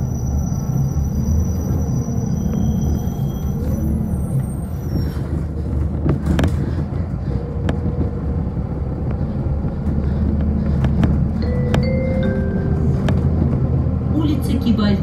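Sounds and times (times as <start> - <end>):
bus engine hum: 0.0 - 15.0
road noise: 0.0 - 15.0
bodywork rattles: 5.1 - 11.9.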